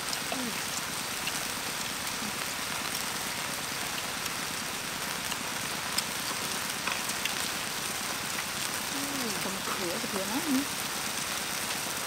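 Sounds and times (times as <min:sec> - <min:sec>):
meat sizzling in a wok: 0:00.0 - 0:12.0.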